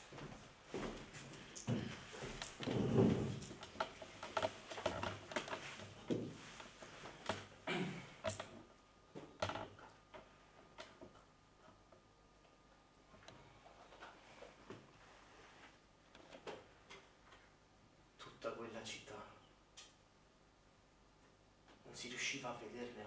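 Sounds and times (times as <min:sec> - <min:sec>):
chair creaking: 0:00.8 - 0:11.3.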